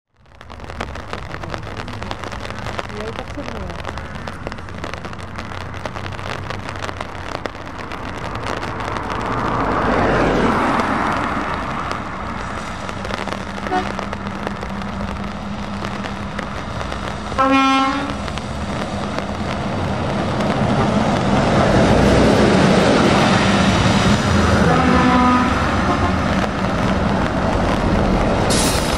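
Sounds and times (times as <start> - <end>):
heavy vehicles passing on wet road: 0.2 - 28.9
tyres hissing on wet road: 0.2 - 28.9
vehicle horn toots: 17.4 - 18.1, 24.7 - 26.2.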